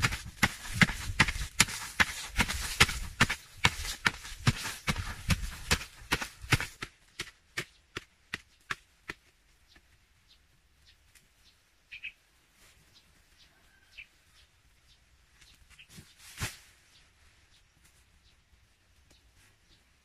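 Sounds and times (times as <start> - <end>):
hand tool striking dry soil: 0.0 - 10.0
bird chirp: 9.5 - 20.0.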